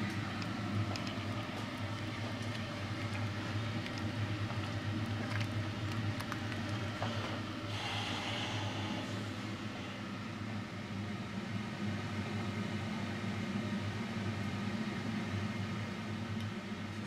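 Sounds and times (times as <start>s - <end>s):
wooden spoon stirring pot: 0.0s - 7.5s
steady low hum: 0.0s - 17.0s.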